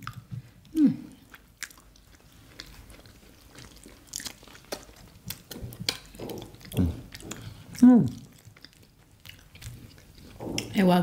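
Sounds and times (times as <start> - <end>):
people chewing food: 0.0 - 11.0
wet mouth smacks and clicks: 4.2 - 10.7.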